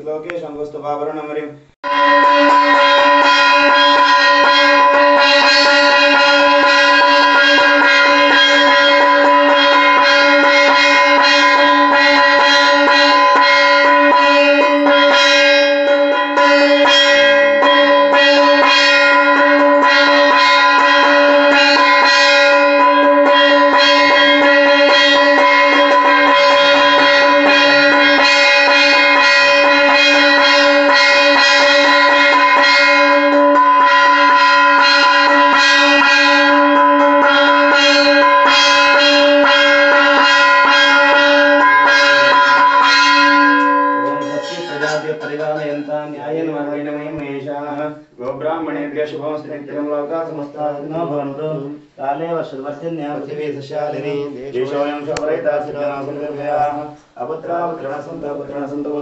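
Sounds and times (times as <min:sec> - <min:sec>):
hand bell ringing rapidly: 0:01.9 - 0:45.9.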